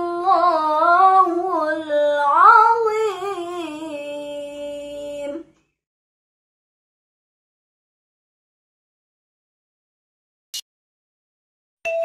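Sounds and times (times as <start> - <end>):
woman reciting melodically: 0.0 - 5.6.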